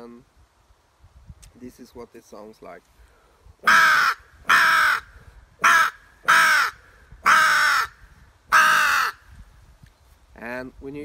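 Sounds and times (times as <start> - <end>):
wooden crow call cawing: 3.6 - 9.2.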